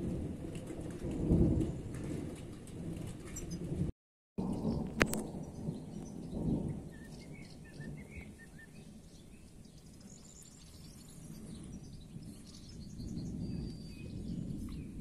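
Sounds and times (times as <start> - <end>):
distant thunder rumbling: 0.0 - 15.0
small birds chirping: 4.4 - 15.0.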